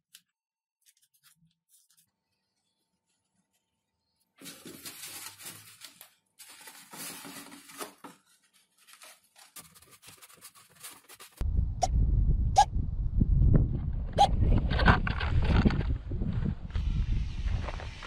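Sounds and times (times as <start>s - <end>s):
hand rubbing paper-covered foam: 0.8s - 11.4s
low wind rumble on microphone: 11.4s - 18.0s.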